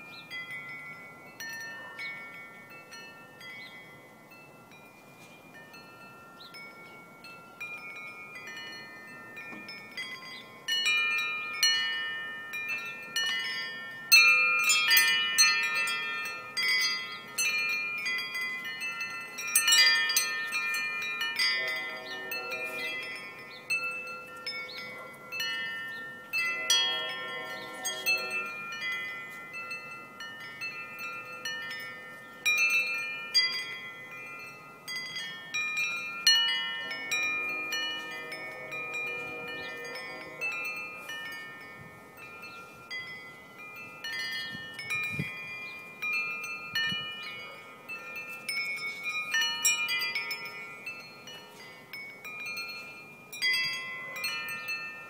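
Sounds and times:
wind chime ringing: 0:00.0 - 0:55.0.

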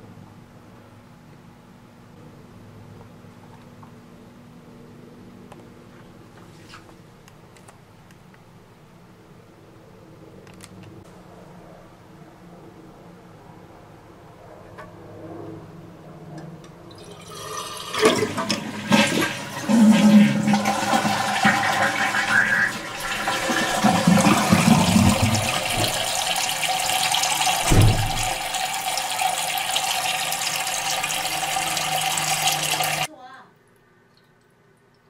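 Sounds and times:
toilet tank refilling: 0:16.9 - 0:33.1
toilet water gushing: 0:16.9 - 0:33.1
low thump: 0:27.6 - 0:28.4.

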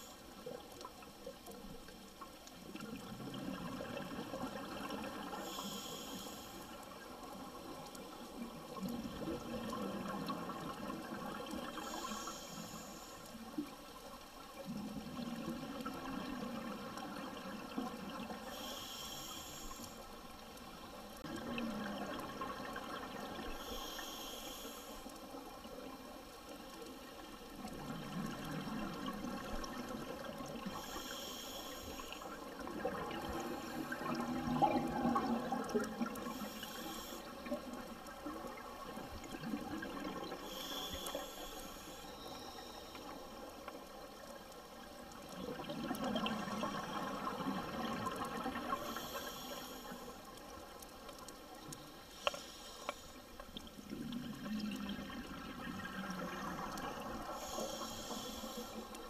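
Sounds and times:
regulator inhalation hiss: 0:05.3 - 0:07.0, 0:11.8 - 0:13.5, 0:18.4 - 0:20.4, 0:23.5 - 0:25.4, 0:30.6 - 0:32.6, 0:36.2 - 0:37.4, 0:40.3 - 0:43.5, 0:48.7 - 0:50.3, 0:51.8 - 0:53.3, 0:56.2 - 0:59.0
exhaled bubbles rushing: 0:32.7 - 0:36.3.

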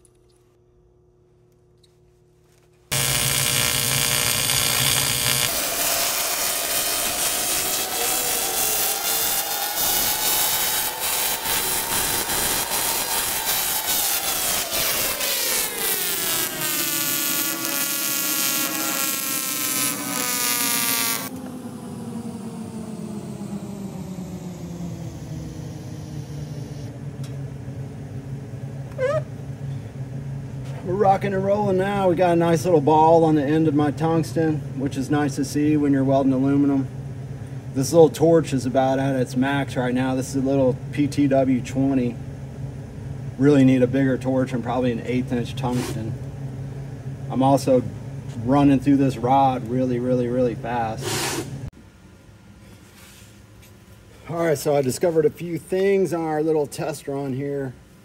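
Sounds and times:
welding arc buzzing: 0:02.9 - 0:23.6.

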